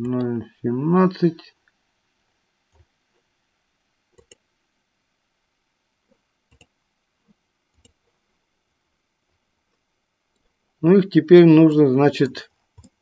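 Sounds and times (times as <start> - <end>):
computer mouse clicks: 4.1 - 4.5, 6.1 - 6.8, 7.7 - 8.1, 12.7 - 13.0.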